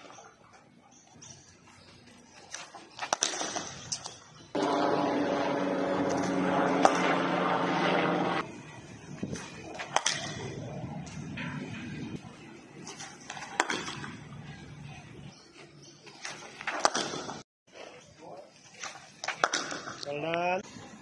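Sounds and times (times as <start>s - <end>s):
steady fixed-pitch hum: 4.6s - 8.9s.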